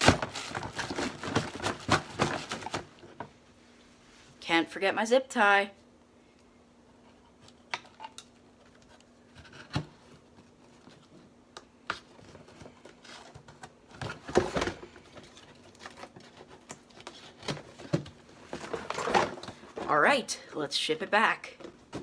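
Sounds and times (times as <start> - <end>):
cardboard box being packed: 0.0 - 2.9, 12.3 - 19.8
plastic and cardboard rustling: 0.0 - 3.4, 8.4 - 20.2.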